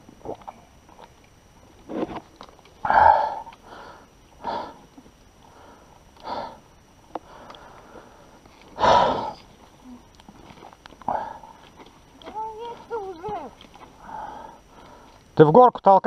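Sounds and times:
person breathing hard: 2.9 - 4.9, 5.5 - 9.4, 14.0 - 15.2.

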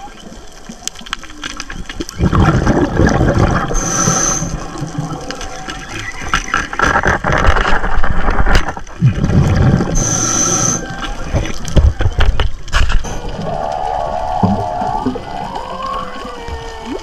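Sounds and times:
whale song underwater: 0.0 - 6.8, 13.0 - 17.0
constant crackling: 0.0 - 17.0
low underwater rumble: 1.3 - 17.0.

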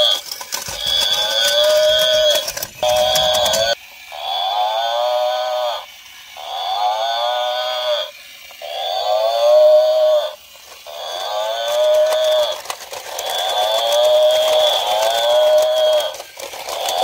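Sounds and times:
toy gearbox clicking: 0.0 - 3.8, 8.3 - 17.0
toy playing recorded bellow: 0.0 - 17.0.

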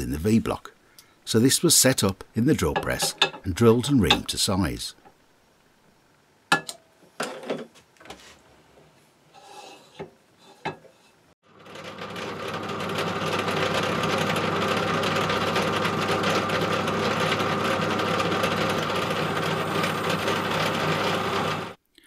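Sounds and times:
drill press drilling brass: 11.6 - 21.8.

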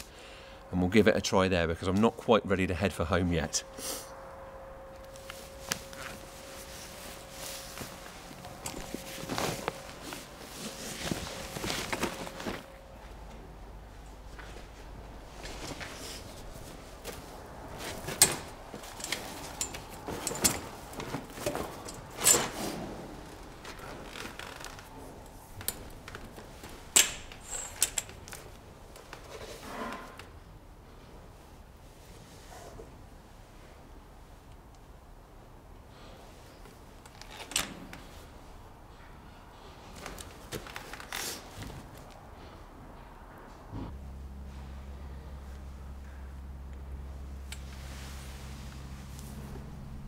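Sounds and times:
soft rustles and clicks: 4.9 - 29.6, 43.9 - 50.0
clicks and knocks of gear: 17.8 - 22.6.

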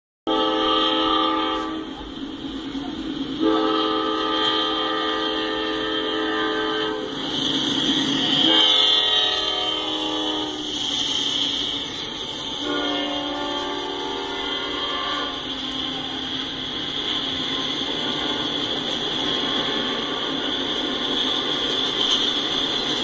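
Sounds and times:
locomotive air horn blasts: 0.3 - 2.1, 3.4 - 7.2, 8.4 - 10.8, 12.4 - 16.4
locomotive rumble and wheel noise: 0.3 - 23.0.

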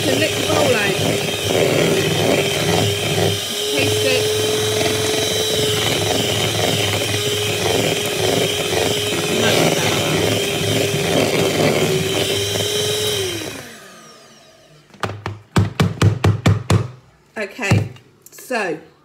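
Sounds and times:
electric hand mixer whine: 0.0 - 14.8.

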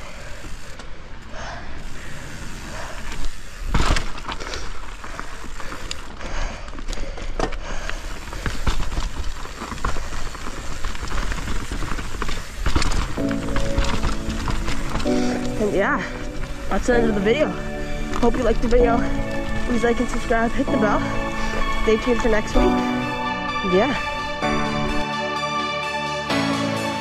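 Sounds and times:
rush of riding noise: 0.0 - 18.8
bike rattling and clicking: 0.0 - 22.9
music: 13.2 - 27.0.

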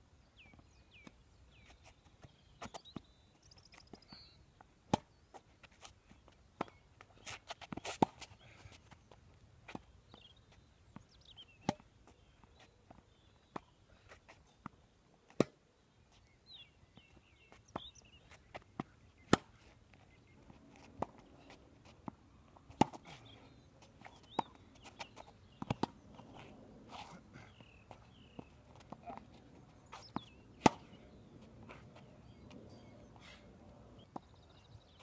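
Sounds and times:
small birds chirping: 0.2 - 35.0
tennis racket strikes: 30.6 - 30.9.

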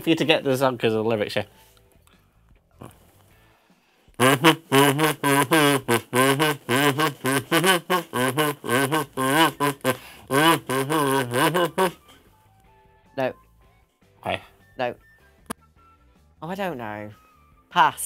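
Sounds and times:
kazoo buzzing a melody: 4.2 - 12.2.

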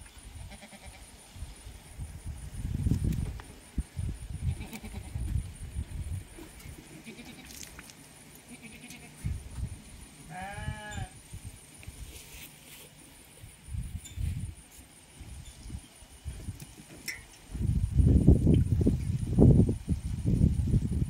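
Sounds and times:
goat bleating: 0.5 - 1.0, 4.4 - 5.2, 7.0 - 7.5, 8.5 - 9.2, 10.3 - 11.2.

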